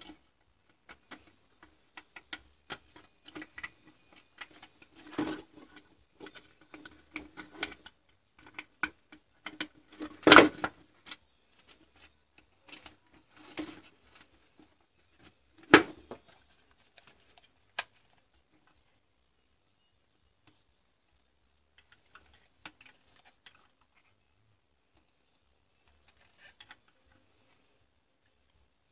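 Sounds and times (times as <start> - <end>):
hands handling plastic housing: 0.0 - 18.8.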